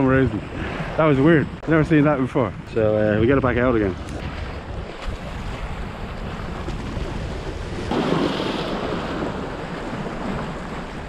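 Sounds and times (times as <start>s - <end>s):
wind rumbling on microphone: 0.0s - 11.0s
sea waves washing against rocks: 3.8s - 11.0s
wave breaking and splashing: 3.8s - 11.0s.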